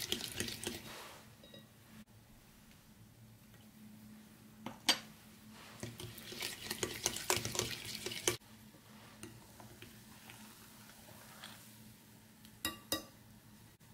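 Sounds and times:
whisk beating batter in a bowl: 0:00.0 - 0:01.0, 0:05.8 - 0:08.4.

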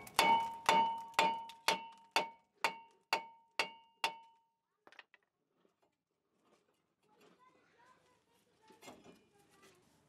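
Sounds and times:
hammer striking metal rotor: 0:00.0 - 0:04.4.

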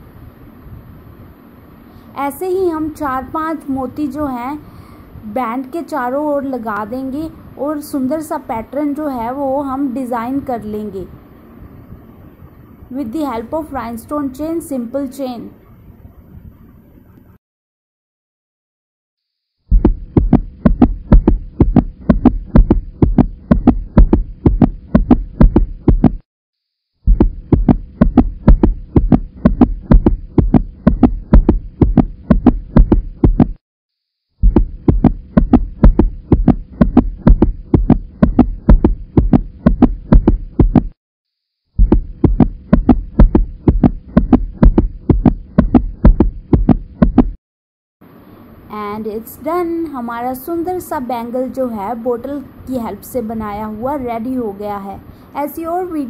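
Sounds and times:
steady hum: 0:00.0 - 0:17.4, 0:19.7 - 0:26.2, 0:27.0 - 0:33.6, 0:34.4 - 0:41.0, 0:41.8 - 0:47.4, 0:48.0 - 0:56.0
bass-heavy rhythmic beat: 0:19.7 - 0:26.2, 0:27.1 - 0:33.6, 0:34.4 - 0:41.0, 0:41.8 - 0:47.4.

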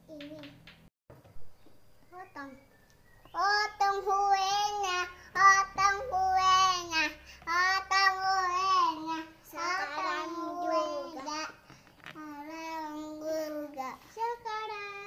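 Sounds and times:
child singing: 0:03.3 - 0:15.0.

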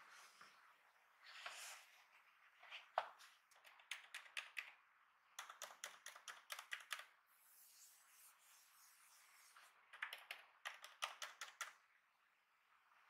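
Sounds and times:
laptop keys clicking: 0:03.5 - 0:04.8, 0:05.4 - 0:07.1, 0:09.9 - 0:11.8.

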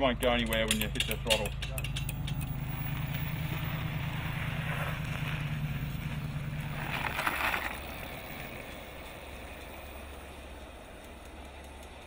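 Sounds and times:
electric motorcycle hum: 0:01.5 - 0:12.0
tyre noise: 0:02.0 - 0:09.8.

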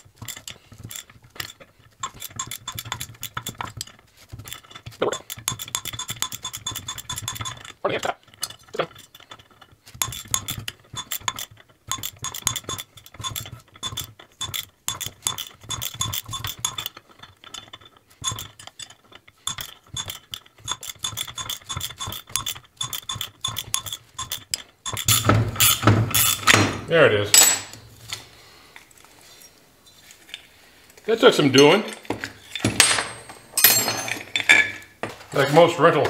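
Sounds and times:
metallic clicks of pulley puller: 0:00.0 - 0:26.6.

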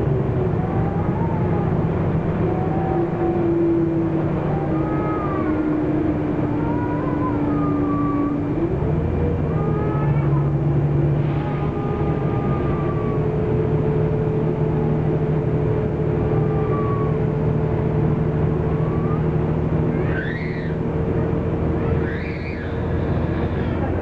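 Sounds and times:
bus diesel engine drone: 0:00.0 - 0:24.0
road noise: 0:00.0 - 0:24.0
short high squeals: 0:20.0 - 0:20.8, 0:21.8 - 0:23.9.

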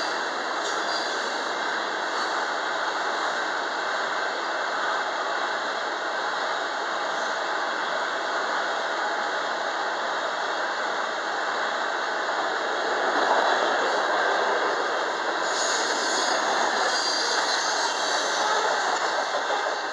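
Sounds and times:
train wheels rolling on rails: 0:00.0 - 0:19.9
faint high squeal: 0:15.4 - 0:19.0.

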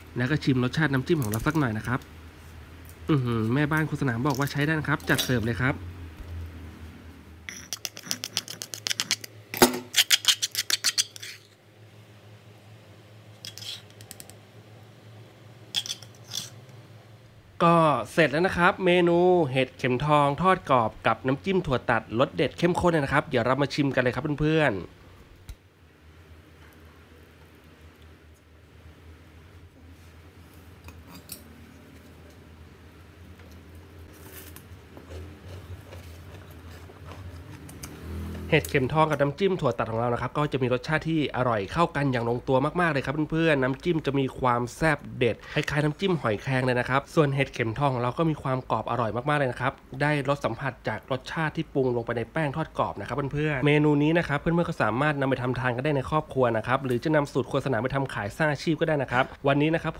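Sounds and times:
steady low hum: 0:00.0 - 0:59.9
metal spoon clinking in glass bowl: 0:07.5 - 0:08.5
utensil scraping stone mortar: 0:09.9 - 0:11.6.

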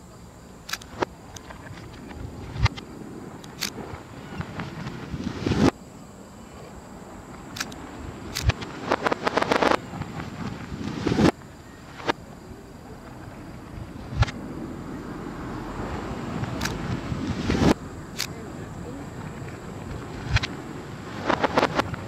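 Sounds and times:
reversed crackling: 0:00.7 - 0:05.8, 0:07.3 - 0:22.0
reversed firework booms: 0:02.1 - 0:05.8, 0:07.8 - 0:12.6, 0:15.6 - 0:22.0.

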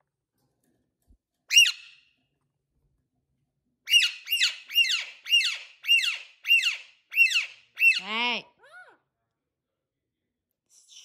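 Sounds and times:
parakeet calling loudly: 0:01.5 - 0:02.0, 0:03.9 - 0:08.4.

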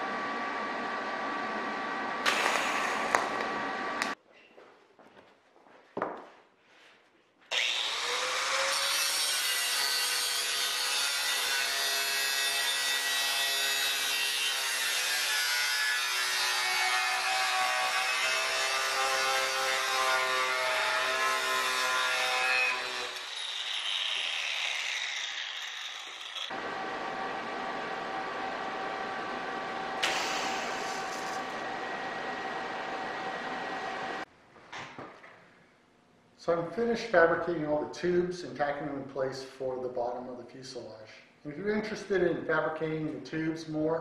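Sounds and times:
angle grinder cutting steel: 0:07.5 - 0:26.7, 0:30.0 - 0:34.2.

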